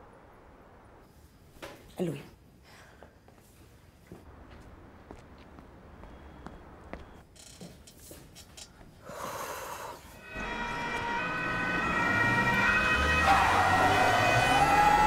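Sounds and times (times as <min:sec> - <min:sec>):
police sirens wailing: 0:10.2 - 0:15.0.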